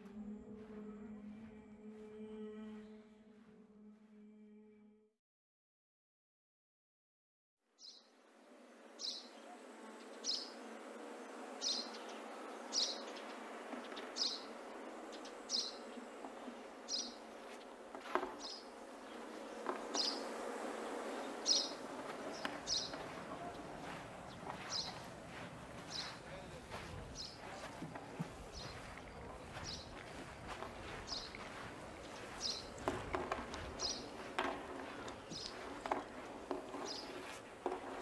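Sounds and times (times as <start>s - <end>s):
buzzing insect drone: 8.2s - 38.0s.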